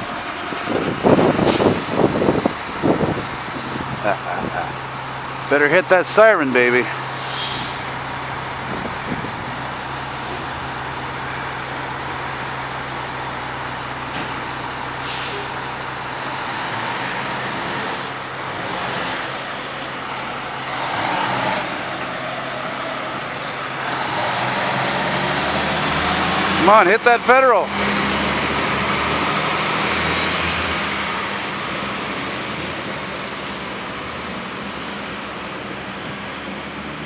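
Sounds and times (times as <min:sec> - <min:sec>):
diesel engine running: 0:00.0 - 0:37.0
air brake hisses: 0:06.9 - 0:07.9, 0:15.0 - 0:15.5.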